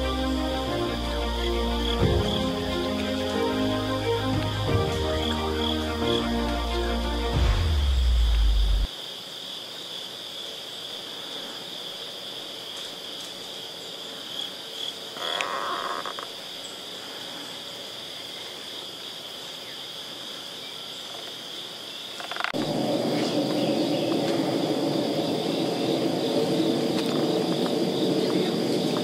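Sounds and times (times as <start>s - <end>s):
low rushing sound: 0.0s - 8.9s
insects droning: 0.0s - 29.0s.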